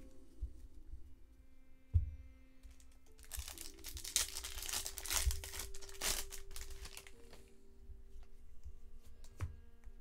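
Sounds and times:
wrapper crinkling and tearing: 0:02.8 - 0:07.4.

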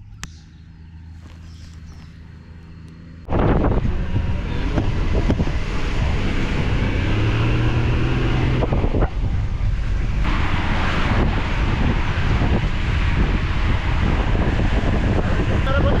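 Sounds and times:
vehicle engine running: 0:00.0 - 0:16.0
wind noise on microphone: 0:03.3 - 0:16.0.

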